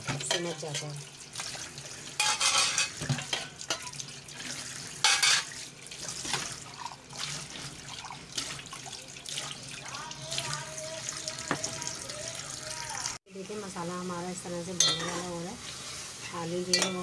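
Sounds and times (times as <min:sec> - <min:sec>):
tap water running into a sink: 0:00.0 - 0:13.2
crockery knocking against sink: 0:11.5 - 0:11.7.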